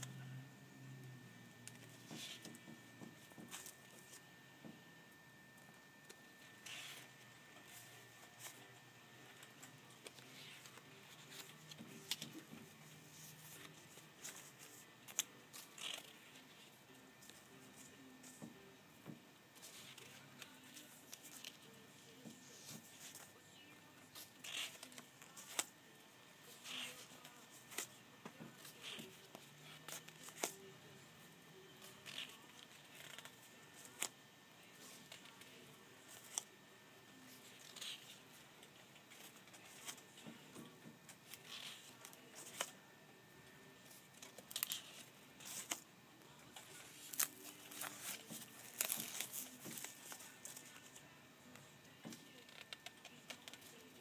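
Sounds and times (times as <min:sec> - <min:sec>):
paper and fabric rustling: 0:43.8 - 0:54.0.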